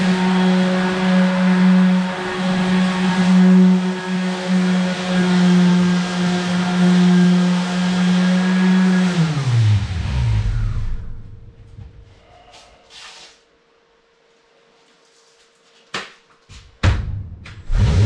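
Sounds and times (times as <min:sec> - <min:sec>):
orbital sander spinning down: 0:00.0 - 0:11.5.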